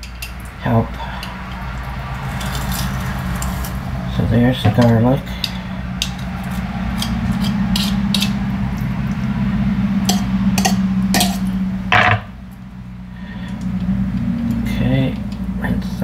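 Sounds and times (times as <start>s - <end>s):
steady low hum: 0.0s - 16.0s
utensils knocking on crock: 4.6s - 8.4s, 10.1s - 12.3s.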